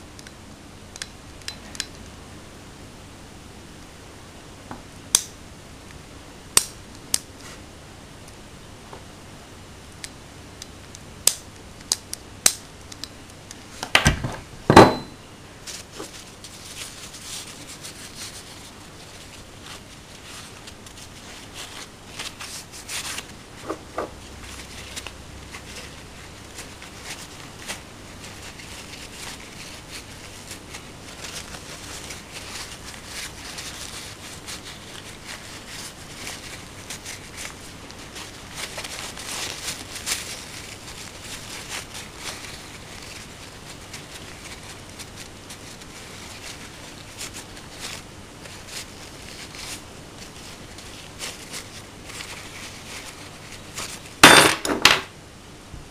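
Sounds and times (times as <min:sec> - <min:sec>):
paper rustling: 0:15.6 - 0:54.5.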